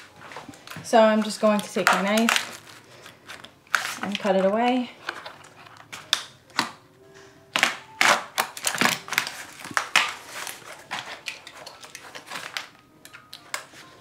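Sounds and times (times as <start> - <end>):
knife scraping through plastic: 8.0 - 12.7.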